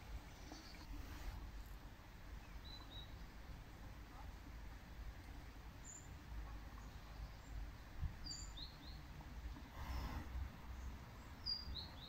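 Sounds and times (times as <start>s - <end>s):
small bird chirping: 2.4s - 3.2s, 8.2s - 9.0s.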